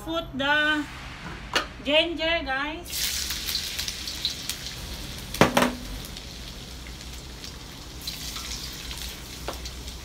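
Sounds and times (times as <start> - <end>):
oil sizzling in a wok: 2.8 - 10.0.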